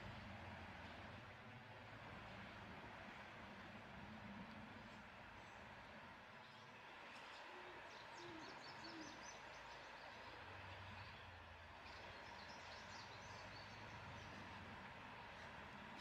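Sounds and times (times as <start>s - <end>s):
bird low calls: 7.3s - 10.1s.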